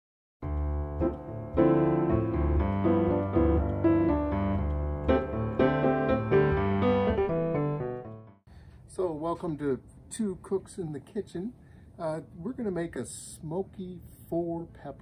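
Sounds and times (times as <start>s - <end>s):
piano chords over bass line: 0.4s - 8.4s.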